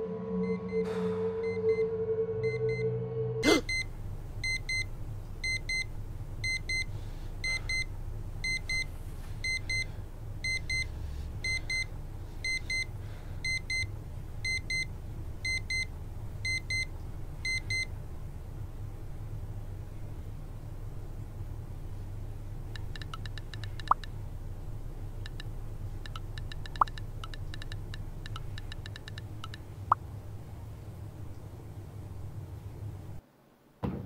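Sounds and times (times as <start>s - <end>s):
electronic alarm beeping: 0.4s - 3.0s, 4.4s - 8.8s.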